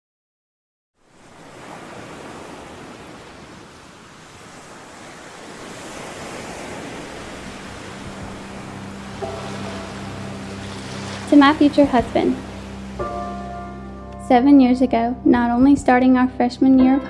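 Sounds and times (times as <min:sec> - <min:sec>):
waves washing on shore: 0:01.0 - 0:13.8.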